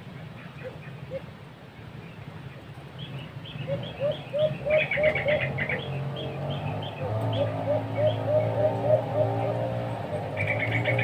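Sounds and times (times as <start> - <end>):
small birds chirping: 0.0 - 11.0
doves cooing: 0.6 - 1.4, 3.6 - 11.0.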